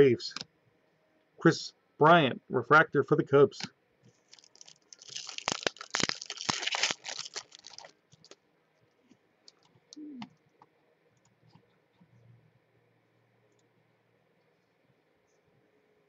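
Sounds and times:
foil wrapper crinkling: 0:04.2 - 0:08.4.

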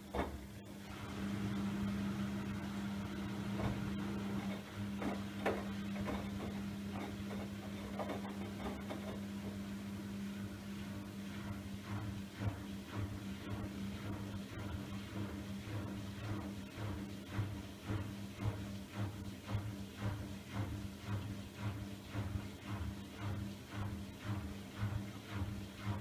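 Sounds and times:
washing machine spin hum: 0:00.0 - 0:26.0
wet laundry knocking in drum: 0:03.5 - 0:09.6, 0:11.9 - 0:26.0.

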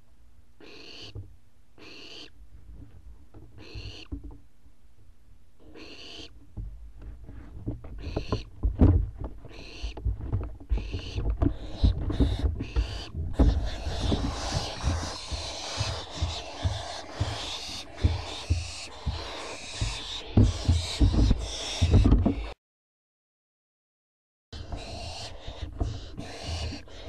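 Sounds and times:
owlets raspy calls: 0:00.6 - 0:01.2, 0:01.8 - 0:02.4, 0:03.6 - 0:04.1, 0:05.6 - 0:06.4, 0:08.0 - 0:08.5, 0:09.5 - 0:10.0, 0:10.7 - 0:22.5, 0:24.6 - 0:27.0
knocks and scuffling: 0:06.4 - 0:22.5.

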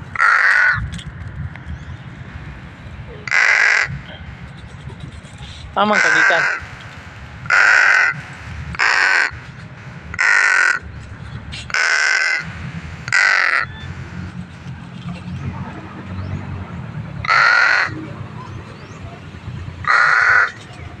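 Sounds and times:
low rumble: 0:00.0 - 0:17.3
crow cawing: 0:00.1 - 0:00.9, 0:03.2 - 0:04.2, 0:05.8 - 0:06.7, 0:07.4 - 0:08.2, 0:08.8 - 0:09.4, 0:10.1 - 0:10.9, 0:11.7 - 0:12.5, 0:13.1 - 0:13.9, 0:17.2 - 0:18.0, 0:19.8 - 0:20.6.

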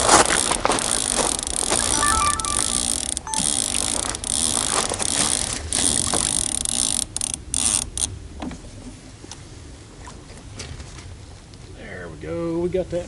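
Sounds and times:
fishing reel clicker ratcheting: 0:06.3 - 0:08.1.

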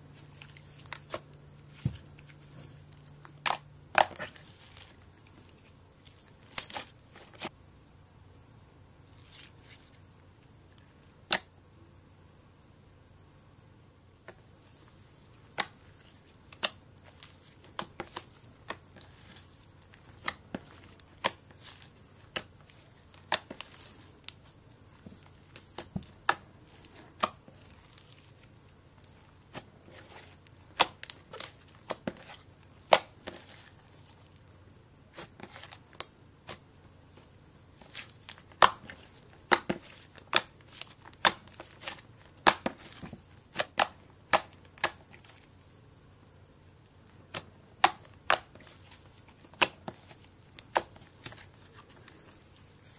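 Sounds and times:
slime popping and crackling: 0:37.8 - 0:45.3.

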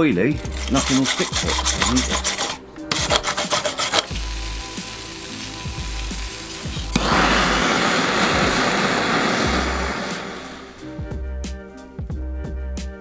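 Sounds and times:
brush scrubbing metal: 0:00.4 - 0:05.0
gas torch hissing: 0:00.4 - 0:11.0.

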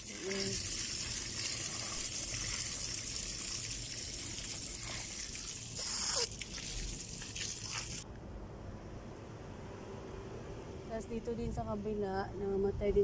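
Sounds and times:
water running through hose: 0:00.0 - 0:08.0.

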